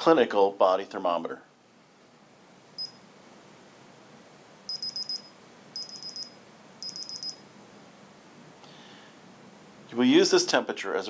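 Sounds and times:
thermometer rapid high beeps: 0:02.8 - 0:03.0, 0:04.7 - 0:07.4.

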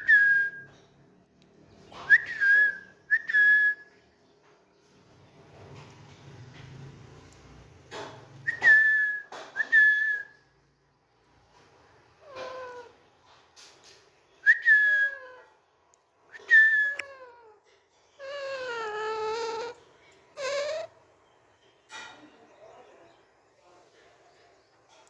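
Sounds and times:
parakeet calling: 0:18.2 - 0:21.2.

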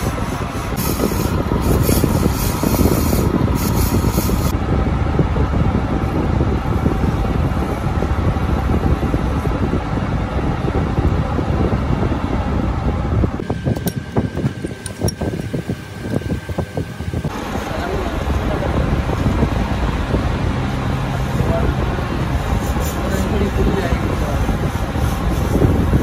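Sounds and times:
metal lathe cutting rumble: 0:00.0 - 0:04.7, 0:05.6 - 0:26.0.

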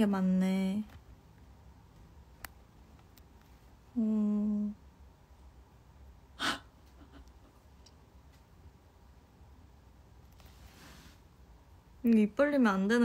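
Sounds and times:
woman humming: 0:04.0 - 0:04.8.

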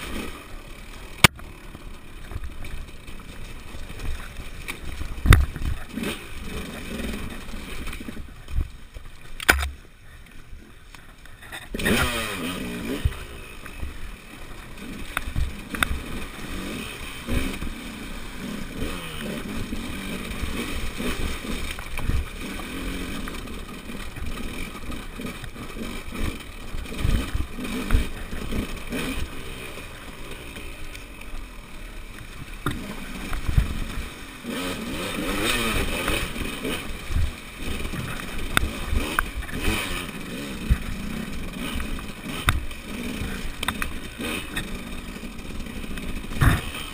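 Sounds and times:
motorcycle engine revving: 0:00.0 - 0:46.9
motorcycle clattering over rocks: 0:00.1 - 0:10.0, 0:18.8 - 0:46.9.

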